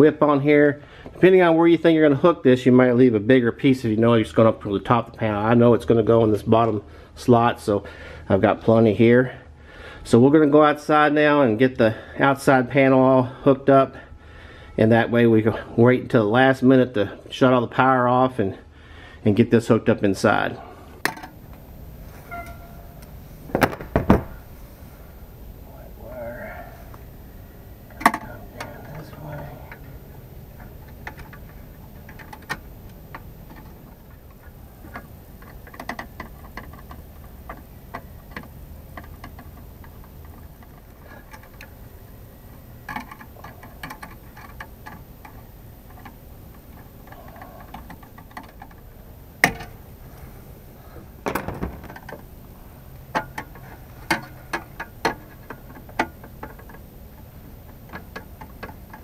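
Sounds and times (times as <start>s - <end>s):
wires clicking on metal box: 27.9s - 41.9s, 42.5s - 49.8s, 51.2s - 59.0s.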